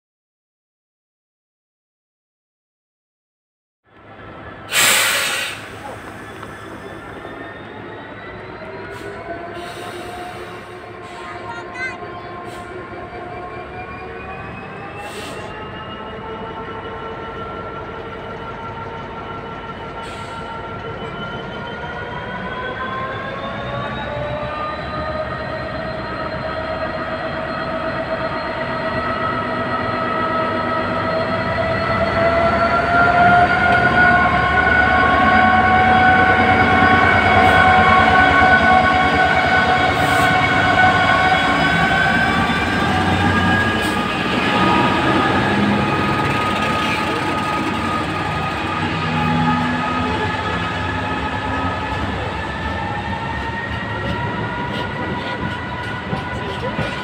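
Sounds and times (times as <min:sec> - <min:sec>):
diesel locomotive engine whine: 0:03.9 - 0:57.0
freight wagons rumbling: 0:41.4 - 0:57.0.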